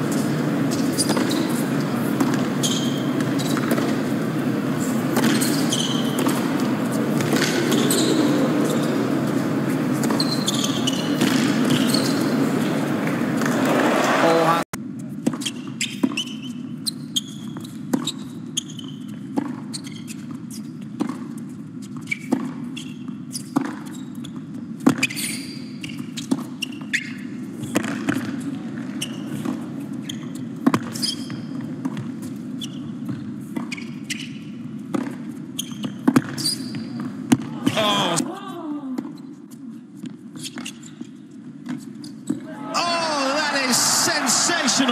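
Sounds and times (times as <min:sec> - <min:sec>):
shoe squeaks: 0:00.1 - 0:04.0, 0:04.8 - 0:13.6, 0:15.2 - 0:20.9, 0:21.8 - 0:27.8, 0:28.9 - 0:31.5, 0:32.2 - 0:34.6, 0:35.4 - 0:37.0, 0:40.3 - 0:42.4
racquets hitting tennis ball: 0:00.8 - 0:09.2
arena murmur: 0:37.6 - 0:38.3.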